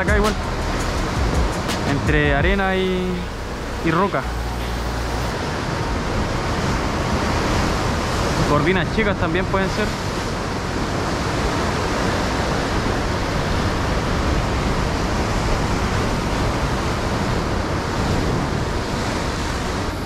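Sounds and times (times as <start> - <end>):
ocean surf washing ashore: 0.0 - 20.0
wind on microphone: 9.9 - 20.0.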